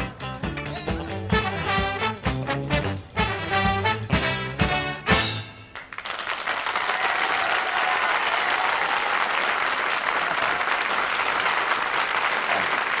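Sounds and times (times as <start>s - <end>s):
band playing: 0.0s - 5.8s
audience applauding: 5.7s - 13.0s.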